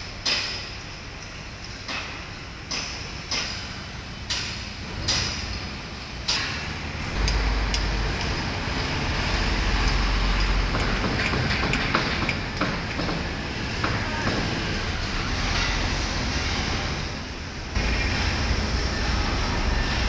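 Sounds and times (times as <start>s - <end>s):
tram rumbling on tracks: 1.0s - 20.0s
tram clunks: 1.9s - 14.8s.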